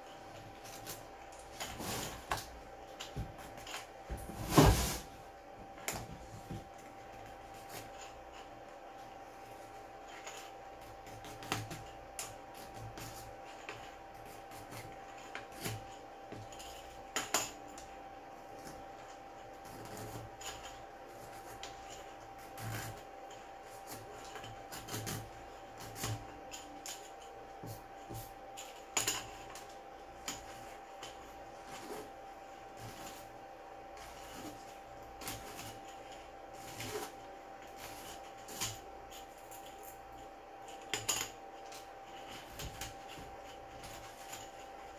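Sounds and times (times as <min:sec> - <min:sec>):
hand tool clicking and scraping plastic: 0:18.5 - 0:33.3, 0:33.9 - 0:44.9.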